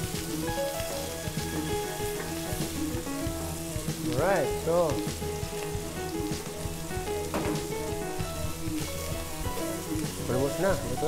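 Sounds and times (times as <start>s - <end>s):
food sizzling in a frying pan: 0.0s - 11.0s
knock: 7.3s - 8.0s.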